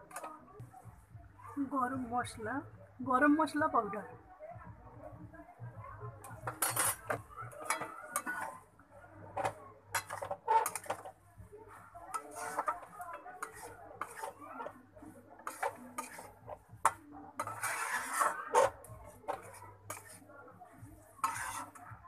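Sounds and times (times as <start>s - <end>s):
metal spatula scraping a wok: 0.0s - 0.4s, 6.4s - 11.2s, 11.8s - 20.3s, 21.0s - 22.0s.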